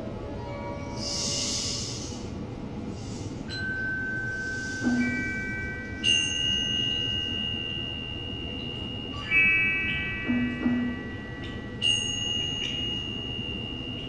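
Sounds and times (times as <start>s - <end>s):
metal chimes ringing: 3.4s - 14.0s.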